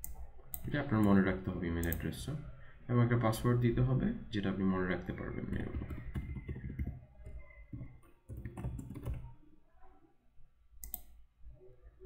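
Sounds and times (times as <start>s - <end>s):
computer keyboard typing: 5.4s - 9.4s.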